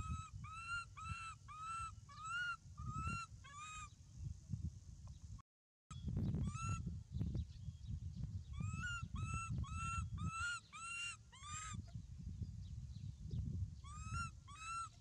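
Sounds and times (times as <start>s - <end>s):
baby monkey coo calls: 0.0s - 3.9s, 6.4s - 6.8s, 8.5s - 12.0s, 13.8s - 15.0s.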